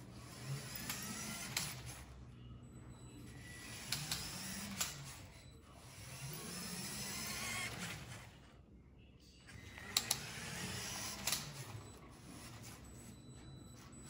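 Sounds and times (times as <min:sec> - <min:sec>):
toy motor and gears whirring: 0:00.0 - 0:02.2, 0:03.3 - 0:08.3, 0:09.8 - 0:11.8.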